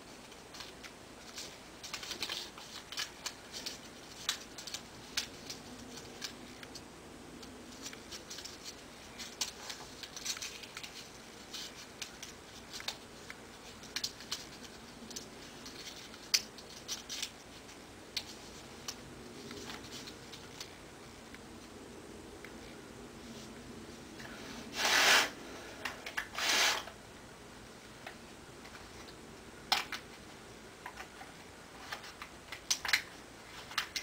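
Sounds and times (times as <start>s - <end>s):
paper crinkling and snapping: 0.2s - 21.4s, 28.7s - 34.0s.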